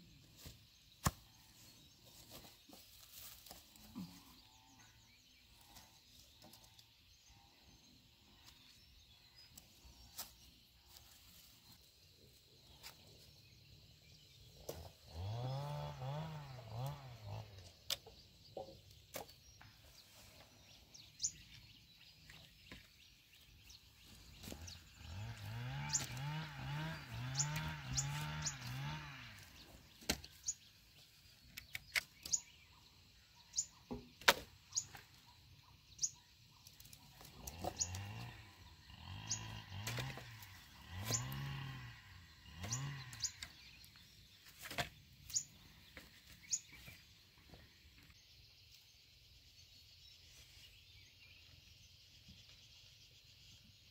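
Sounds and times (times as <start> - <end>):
bird chirps: 17.8 - 39.6, 42.4 - 53.9.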